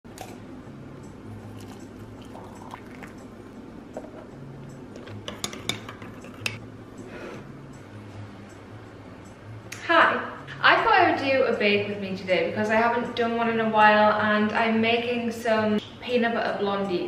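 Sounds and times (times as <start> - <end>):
liquid pouring into mug: 1.3 - 3.6
spoon stirring and clinking mug: 1.4 - 3.2, 5.0 - 6.6.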